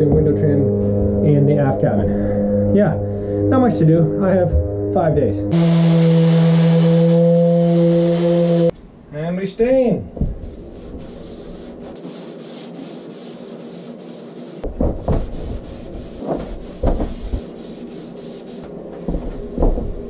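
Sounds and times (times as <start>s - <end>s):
steady low hum: 0.0s - 20.0s
cloth rubbing on wooden door: 10.3s - 20.0s.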